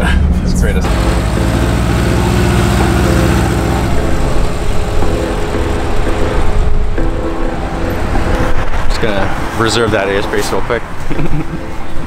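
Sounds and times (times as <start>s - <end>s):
street traffic noise: 0.0s - 12.0s
van engine driving past: 0.8s - 9.6s.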